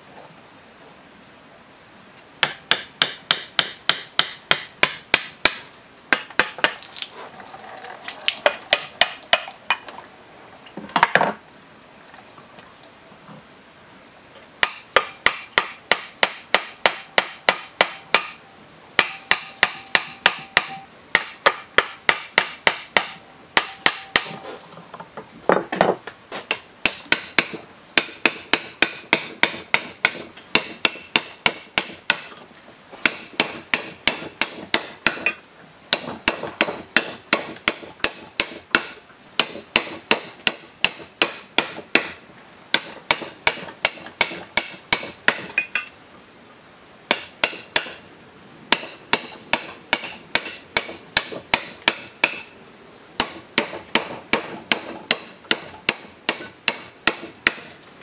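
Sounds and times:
hammer striking chisel on metal: 0:02.4 - 0:06.8, 0:08.4 - 0:09.8, 0:14.6 - 0:18.4, 0:19.0 - 0:24.4, 0:25.5 - 0:32.4, 0:33.0 - 0:45.9, 0:47.1 - 0:48.1, 0:48.7 - 0:52.6, 0:53.2 - 0:57.8.

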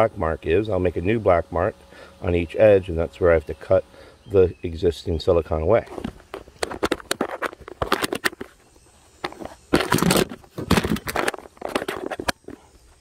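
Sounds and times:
phone handling crackling and scraping: 0:05.8 - 0:13.0.

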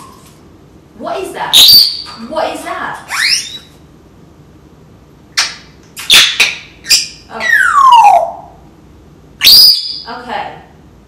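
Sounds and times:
parrot calls: 0:01.5 - 0:02.2, 0:03.1 - 0:03.8, 0:05.4 - 0:08.6, 0:09.4 - 0:10.1
parrot whistling: 0:01.5 - 0:02.2, 0:03.1 - 0:03.8, 0:06.0 - 0:08.6, 0:09.4 - 0:10.1.

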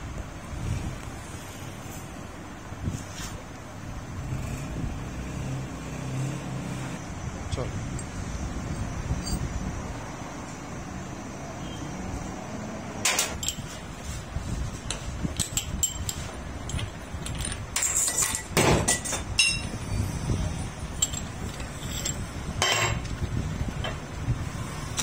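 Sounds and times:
metal tools clinking and knocking: 0:07.9 - 0:09.5, 0:13.1 - 0:13.8, 0:14.9 - 0:19.8, 0:20.9 - 0:23.2.

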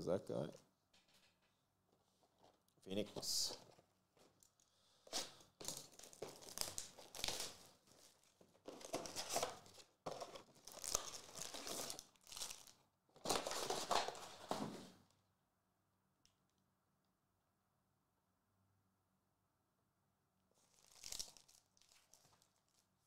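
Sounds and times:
plastic wrapping crinkling and tearing: 0:04.2 - 0:14.5, 0:20.6 - 0:23.0.

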